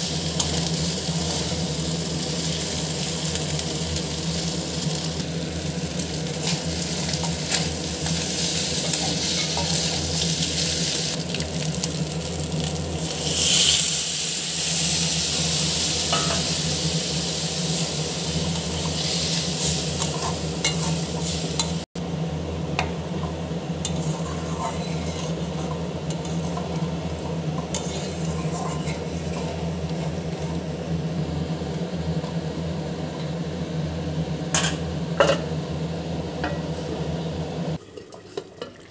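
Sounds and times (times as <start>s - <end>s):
food sizzling in a wok: 0.0s - 21.9s, 23.4s - 32.7s
spatula scraping a wok: 6.4s - 11.2s, 23.9s - 26.8s, 27.6s - 30.5s.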